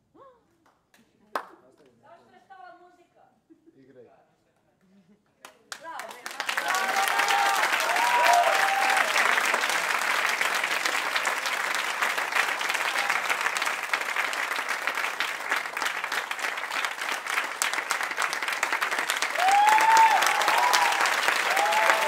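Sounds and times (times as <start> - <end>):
audience applauding: 5.7 - 22.0.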